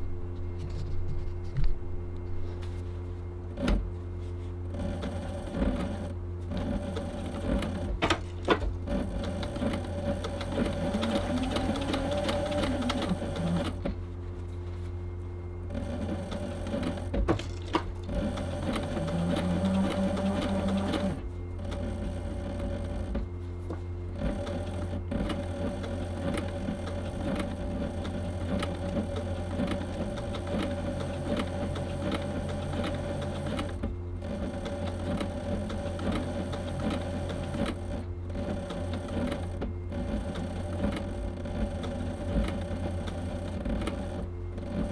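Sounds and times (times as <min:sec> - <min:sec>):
motor hum: 0:00.0 - 0:44.9
sewing machine needle strokes: 0:04.8 - 0:07.9, 0:08.8 - 0:13.9, 0:15.7 - 0:17.1, 0:18.1 - 0:23.2, 0:24.2 - 0:44.9.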